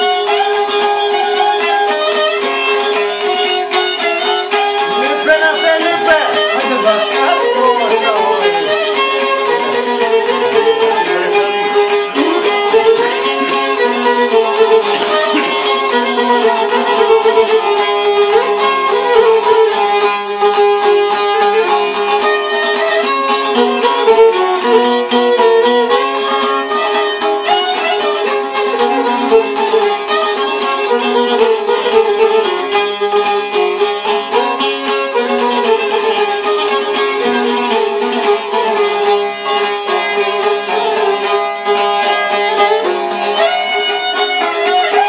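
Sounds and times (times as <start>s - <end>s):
plucked lutes strumming: 0.0s - 45.0s
violin playing folk tune: 0.0s - 45.0s.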